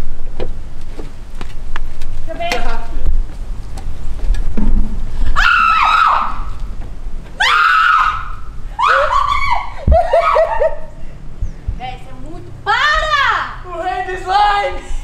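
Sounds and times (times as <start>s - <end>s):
young women screaming: 5.3s - 6.6s, 7.4s - 10.9s.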